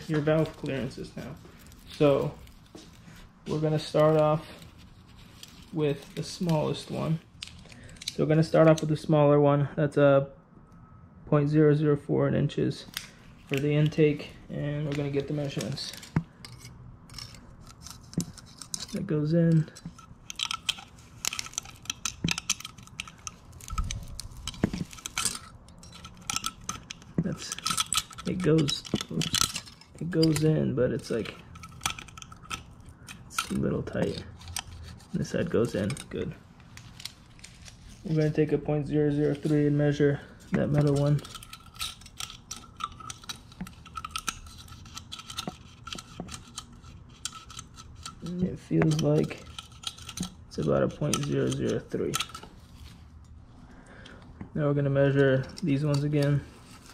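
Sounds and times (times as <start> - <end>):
metal blades clinking and scraping: 0.0 - 2.5, 13.4 - 53.3, 54.8 - 56.9.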